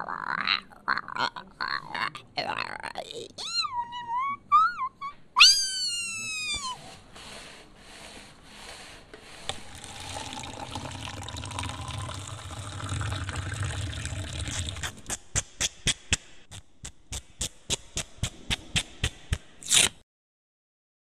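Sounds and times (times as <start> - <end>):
cat meowing: 5.4 - 6.8.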